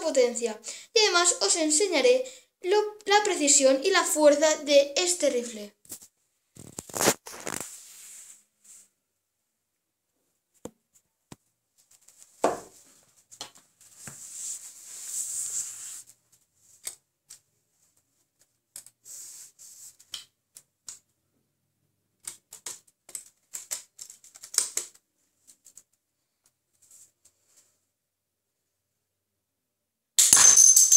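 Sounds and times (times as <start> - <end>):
plastic toy clicks and rattles: 22.2 - 25.0.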